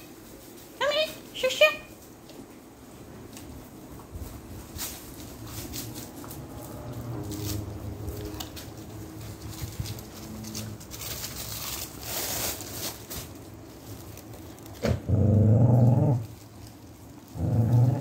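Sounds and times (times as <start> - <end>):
plastic rustling: 0.0 - 18.0
dog growling: 14.8 - 16.4, 17.2 - 18.0.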